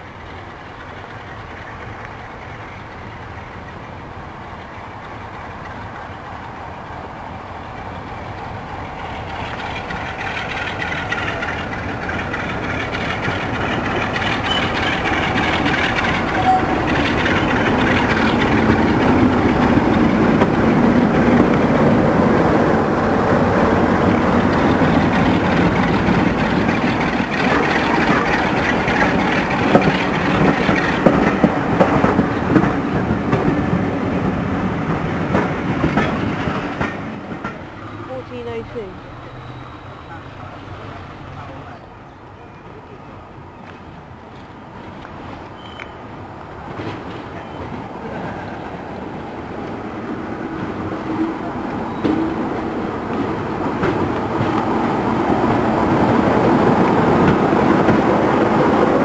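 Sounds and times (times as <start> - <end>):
diesel locomotive engine running: 0.0 - 45.4
train wheels clacking over rail joints: 8.3 - 22.5, 23.6 - 39.0, 46.5 - 59.0.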